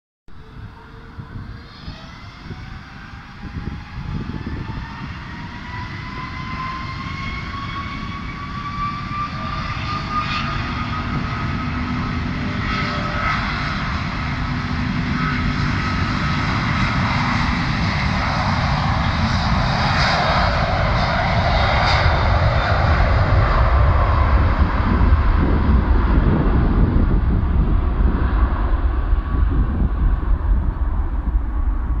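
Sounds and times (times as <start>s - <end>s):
jet engine deep rumble: 0.3s - 32.0s
jet engine whine: 0.3s - 32.0s.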